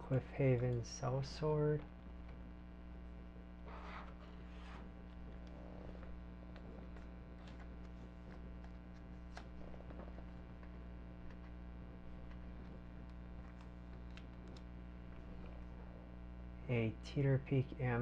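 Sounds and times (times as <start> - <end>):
electrical mains hum: 0.0 - 18.0
plastic rustling of card sleeves: 3.6 - 15.9.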